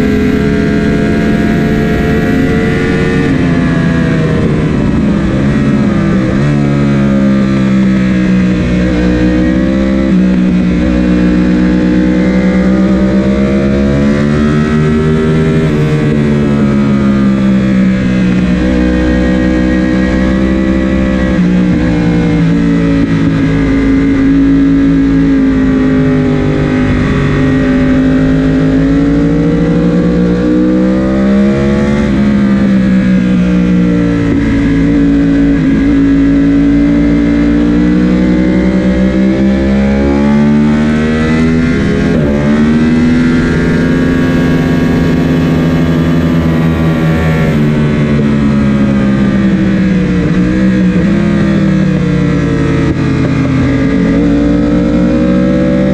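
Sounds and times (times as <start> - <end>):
wind rush: 0.0 - 40.1
motorcycle engine at high revs: 0.0 - 55.9.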